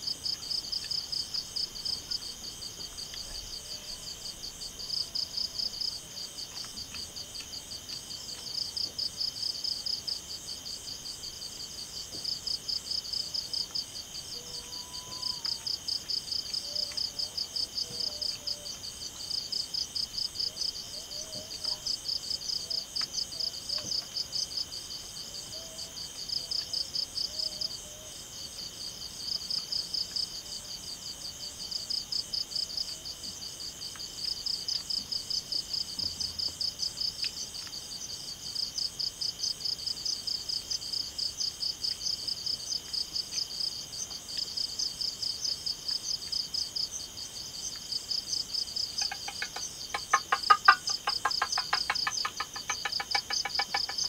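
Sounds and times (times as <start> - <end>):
rapid pulsed insect chirps: 43.4 - 54.0
crickets ringing: 48.6 - 54.0.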